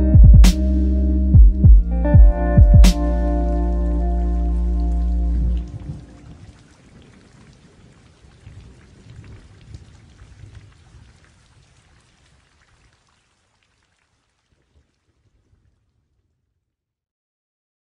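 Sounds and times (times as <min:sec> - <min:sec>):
low rumble: 0:00.0 - 0:06.4
faint rain-like patter: 0:03.0 - 0:16.4.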